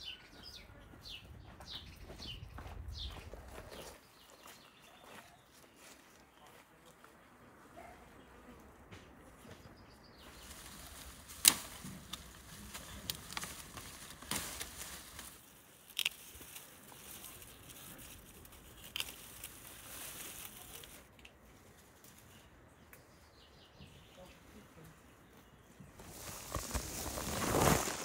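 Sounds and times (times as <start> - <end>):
herb foliage rustling: 10.1 - 23.3, 24.1 - 28.0
garden shears snipping: 10.4 - 21.4.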